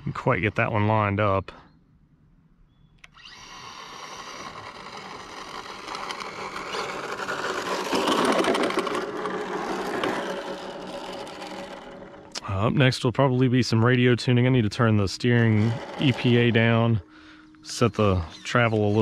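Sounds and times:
rc car motor whirring: 3.0 - 12.4, 14.5 - 17.1, 17.7 - 19.0.

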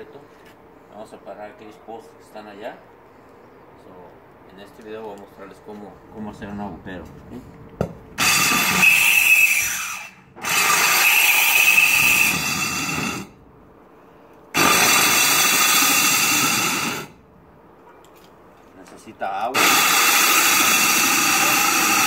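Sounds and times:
core drill boring into concrete: 8.2 - 13.3, 14.6 - 17.2, 19.5 - 22.0.

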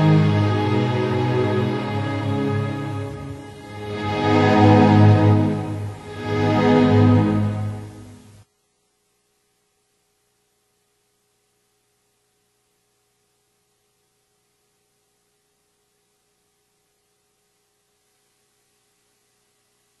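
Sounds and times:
faint steady hiss: 0.0 - 20.0
thin constant hum: 0.0 - 20.0.

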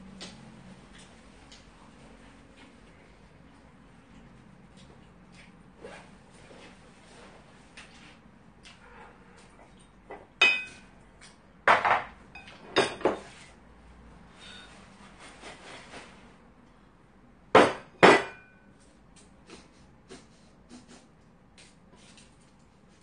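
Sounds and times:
ceramic dishes clinking: 10.4 - 10.8, 11.7 - 13.2, 17.6 - 18.6.

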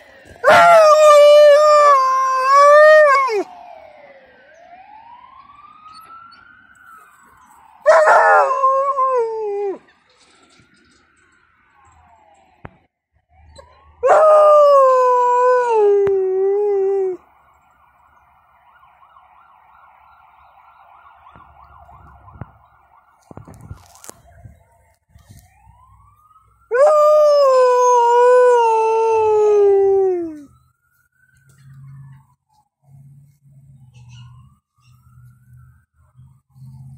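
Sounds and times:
faint ambulance siren wailing: 0.0 - 36.9
dog howling: 0.4 - 3.4, 7.9 - 9.8, 14.0 - 17.2.

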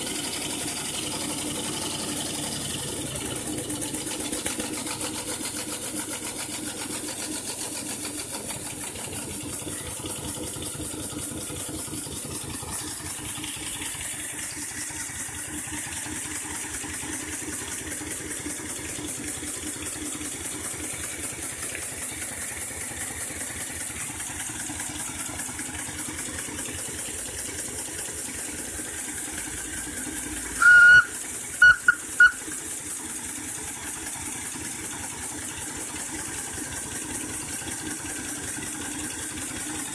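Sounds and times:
steam locomotive rhythmic hiss: 0.0 - 24.7, 25.3 - 39.9
steam whistle toots: 30.5 - 32.6.

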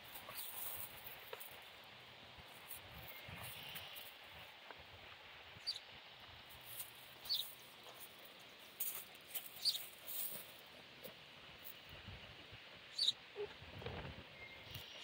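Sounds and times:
small bird chirping: 5.6 - 5.9, 7.2 - 7.6, 9.5 - 9.9, 12.9 - 13.5.

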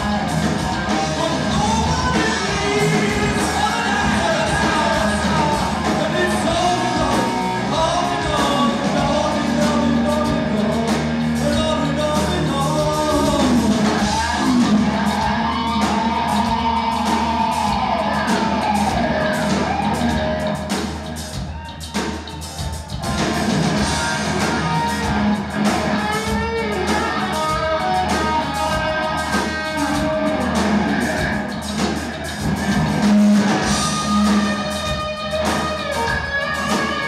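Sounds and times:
bass guitar: 0.0 - 37.0
distorted electric guitar: 0.0 - 37.0
drums: 0.0 - 37.0
man singing wailing vocal: 1.0 - 19.3.

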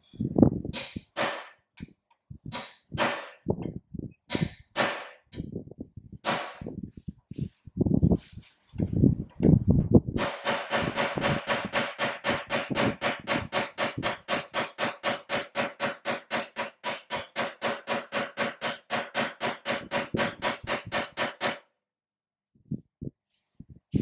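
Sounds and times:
hammer striking steel tool: 0.8 - 1.6, 10.2 - 21.6.

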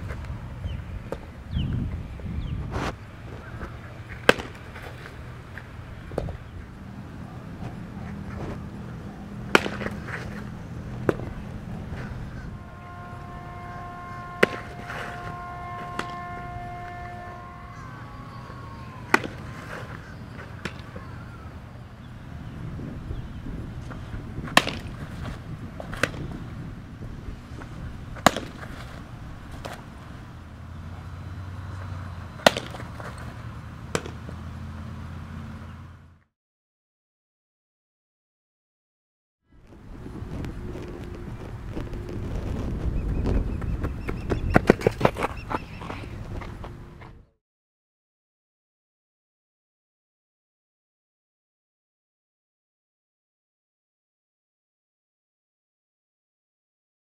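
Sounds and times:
steady low hum: 0.0 - 36.2, 39.5 - 47.4
ball smacking into glove: 3.6 - 5.2, 9.5 - 11.4, 14.4 - 15.3, 19.1 - 21.0, 23.9 - 26.4, 28.2 - 29.9, 32.4 - 33.3, 33.9 - 34.4.

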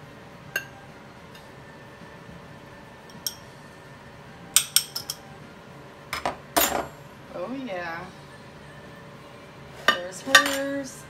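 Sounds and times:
kitchenware clinking: 4.6 - 5.2, 6.2 - 7.0, 9.8 - 10.9.

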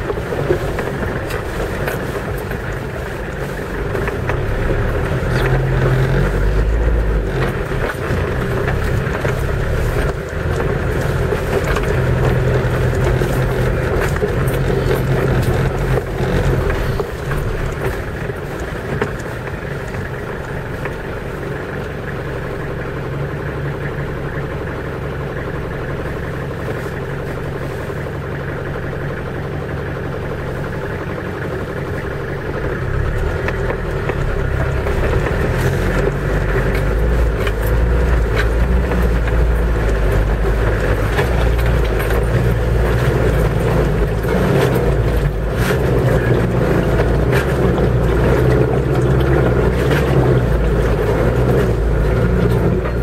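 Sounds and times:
water splashing: 0.0 - 21.9
off-road vehicle engine: 0.0 - 53.0.

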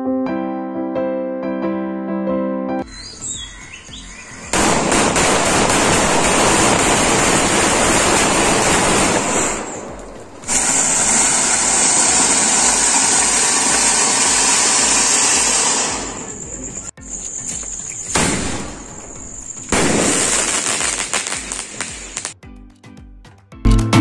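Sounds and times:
bird chirps: 2.8 - 4.6, 16.3 - 18.2
firecrackers crackling: 4.4 - 22.4
fountain firework hissing: 4.6 - 22.4.

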